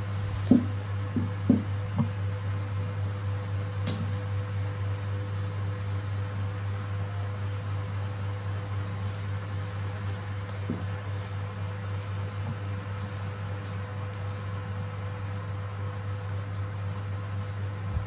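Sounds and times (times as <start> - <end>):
steady low hum: 0.0 - 18.0
soft knocks: 0.4 - 2.1.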